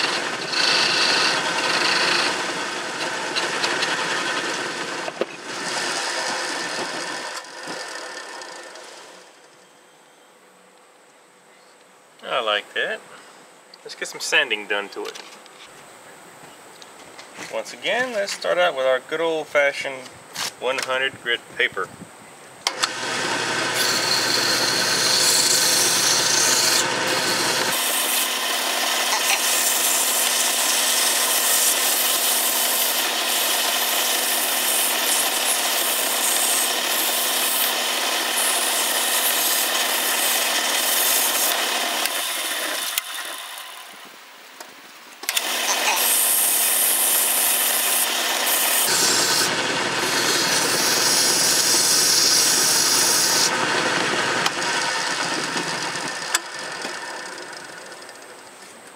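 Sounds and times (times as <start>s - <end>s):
wood lathe running: 0.0s - 9.4s, 22.7s - 44.0s, 45.2s - 58.5s
sandpaper rasping on wood: 29.1s - 42.8s, 45.6s - 53.5s.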